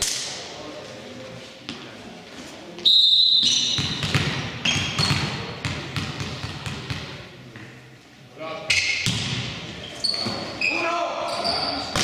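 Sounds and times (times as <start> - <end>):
basketball bouncing on gym court: 3.5 - 7.6, 9.0 - 9.6
short high shoe squeaks: 9.8 - 11.9.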